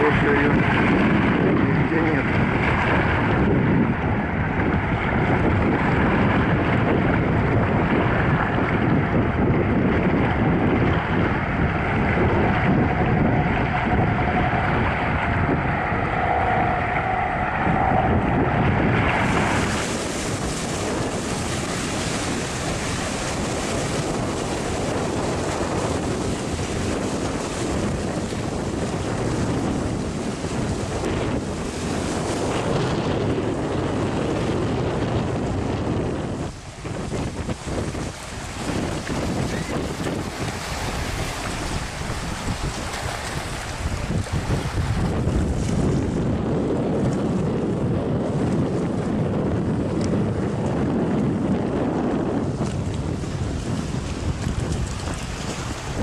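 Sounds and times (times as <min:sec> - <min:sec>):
wind on microphone: 0:00.0 - 0:56.0
sea water splashing against rocks: 0:19.0 - 0:33.8, 0:36.3 - 0:46.2, 0:52.5 - 0:56.0.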